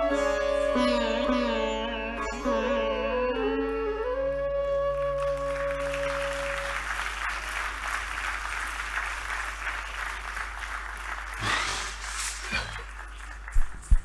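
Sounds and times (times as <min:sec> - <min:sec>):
held music notes: 0:00.0 - 0:07.0
audience applauding: 0:05.0 - 0:14.0.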